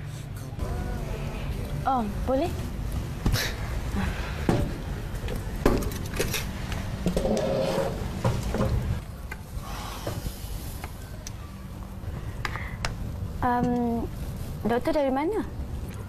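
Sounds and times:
low background hum: 0.0 - 16.0
chair pulled out: 7.1 - 8.8.

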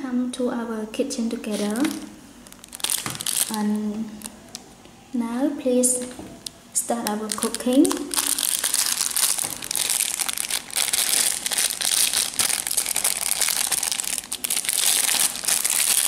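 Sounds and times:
plastic bag crinkling: 1.4 - 4.6, 6.0 - 16.0
plastic toy pieces shifting: 7.3 - 16.0.

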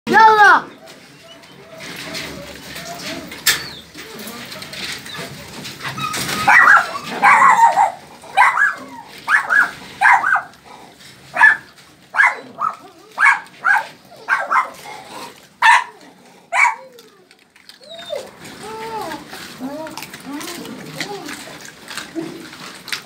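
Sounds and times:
dog barking: 6.4 - 10.5, 11.3 - 14.8, 15.6 - 16.9.

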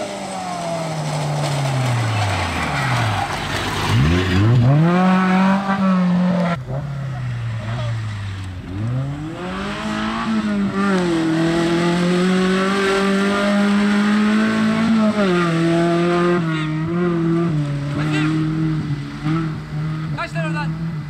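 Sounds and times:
engine revving hard: 3.9 - 6.9, 8.7 - 20.9.

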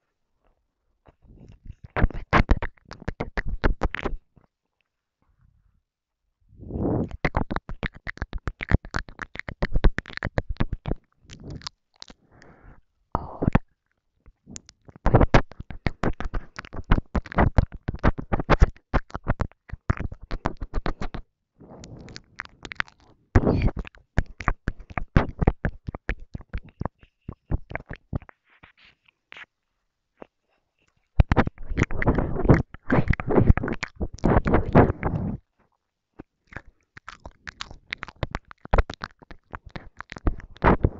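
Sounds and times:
soft breathy whispering: 0.4 - 4.2, 6.5 - 7.5, 10.6 - 13.7, 19.9 - 29.5, 30.1 - 35.6
wet mouth clicks and smacks: 1.1 - 4.3, 7.0 - 12.6, 13.2 - 21.2, 21.8 - 29.5, 30.2 - 35.4, 36.2 - 40.9.

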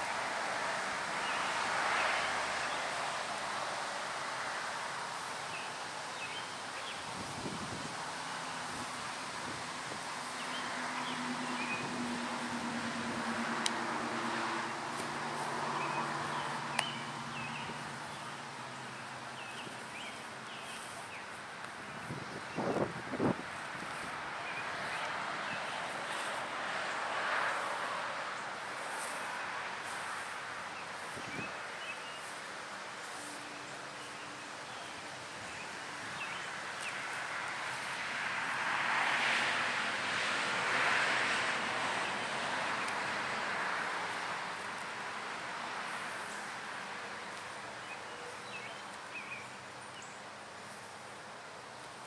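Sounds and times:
rustling leaves: 0.0 - 52.0
wind: 0.0 - 52.0
wind gusts on microphone: 6.9 - 14.9, 21.7 - 28.3, 30.9 - 31.8
birds chirping faintly: 13.8 - 23.0.

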